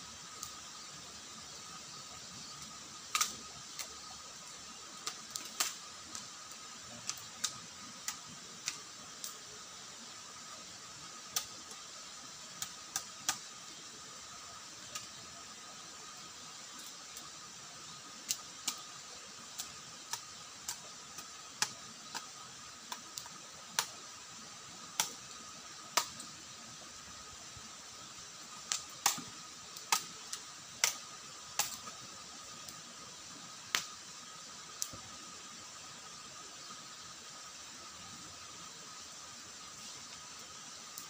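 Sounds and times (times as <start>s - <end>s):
steady hiss: 0.0s - 41.0s.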